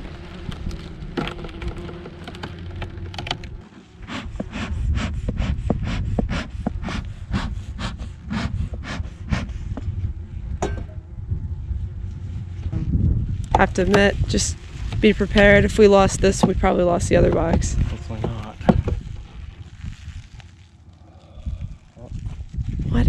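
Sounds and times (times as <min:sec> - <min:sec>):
wind rumbling on microphone: 0:00.0 - 0:03.6, 0:04.2 - 0:23.0
bellows air puffs: 0:03.6 - 0:10.2.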